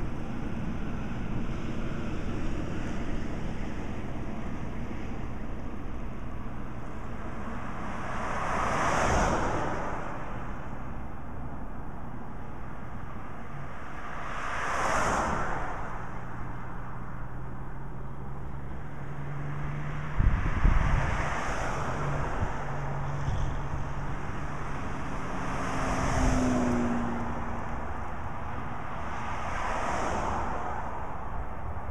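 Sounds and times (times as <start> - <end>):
cars swishing past: 0.0 - 31.9
wind buffeting microphone: 20.0 - 24.1.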